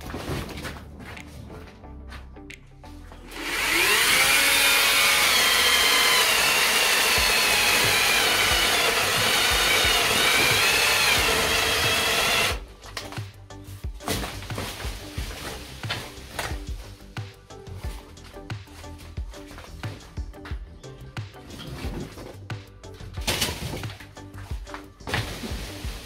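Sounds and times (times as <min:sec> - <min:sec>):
chainsaw cutting tree: 0:03.3 - 0:12.6.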